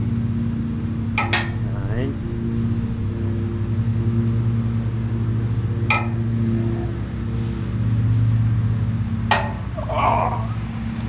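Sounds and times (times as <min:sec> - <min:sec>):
steady low hum: 0:00.0 - 0:11.0
ring clinking against metal: 0:01.2 - 0:01.6, 0:05.9 - 0:06.2.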